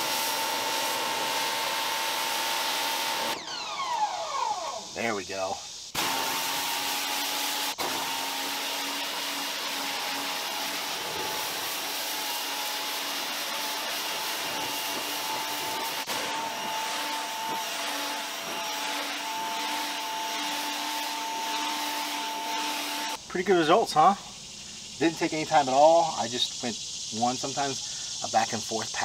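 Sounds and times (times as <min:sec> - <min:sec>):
water jet spraying on wall: 0:00.0 - 0:03.4, 0:05.0 - 0:23.2
pressure washer motor humming: 0:00.0 - 0:05.4, 0:06.0 - 0:23.2.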